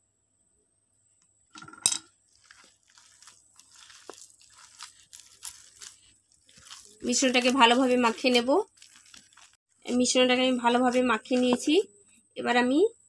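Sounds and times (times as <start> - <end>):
hand squishing batter in bowl: 2.2 - 11.9.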